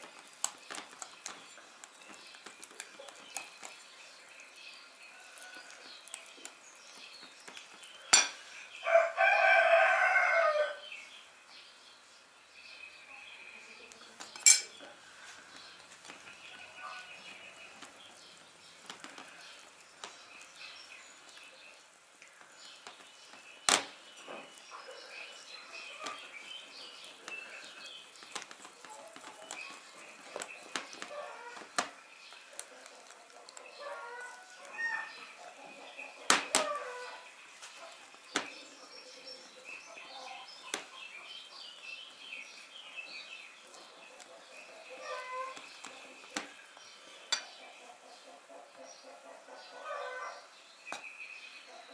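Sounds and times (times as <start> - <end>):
fork clinking against bowl: 14.4 - 14.8.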